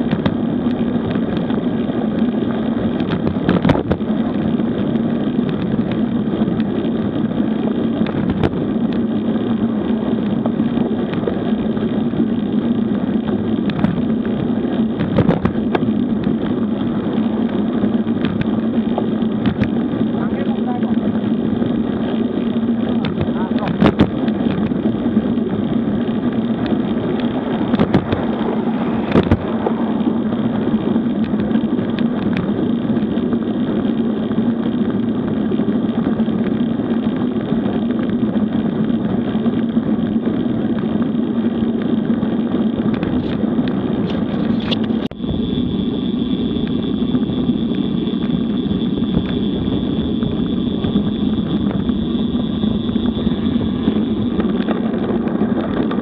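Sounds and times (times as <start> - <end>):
bicycle tyres on asphalt: 0.0 - 56.0
wind rushing over microphone: 0.0 - 56.0
thin steady high tone: 45.1 - 54.6.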